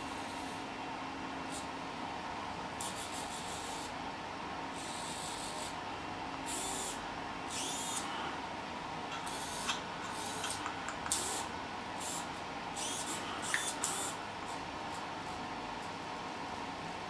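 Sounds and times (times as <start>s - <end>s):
faint steady hum: 0.0s - 17.0s
servo motors whirring: 7.5s - 8.0s, 12.8s - 14.2s.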